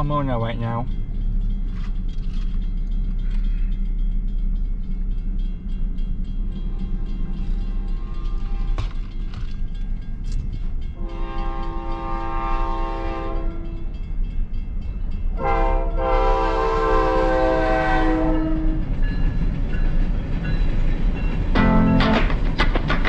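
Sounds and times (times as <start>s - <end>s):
low train rumble: 0.0s - 23.0s
locomotive air horn blasts: 6.7s - 8.8s, 11.0s - 13.8s, 15.4s - 18.8s.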